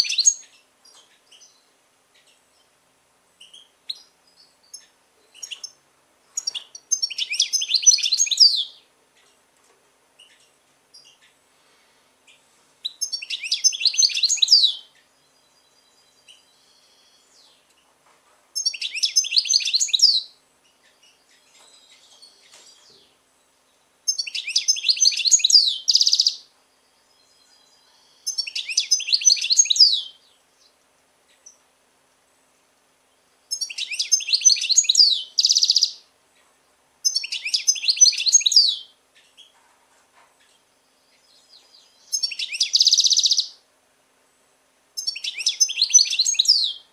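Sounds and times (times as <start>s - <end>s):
goldfinch twittering song: 0.0s - 2.7s, 3.4s - 9.3s, 12.3s - 17.7s, 18.6s - 23.1s, 24.1s - 30.7s, 33.5s - 36.0s, 37.0s - 39.5s, 40.8s - 43.6s, 45.0s - 46.9s.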